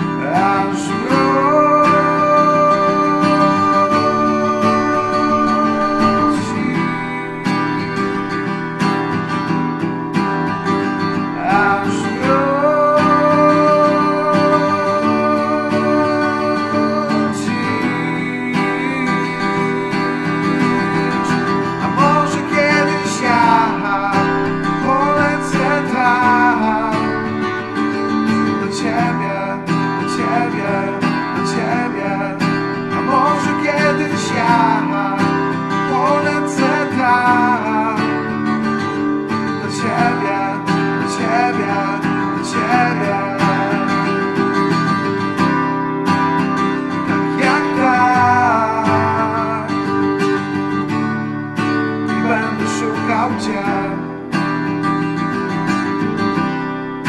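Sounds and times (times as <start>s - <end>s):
acoustic guitar strumming: 0.0s - 57.0s
gliding melody line: 0.7s - 30.0s.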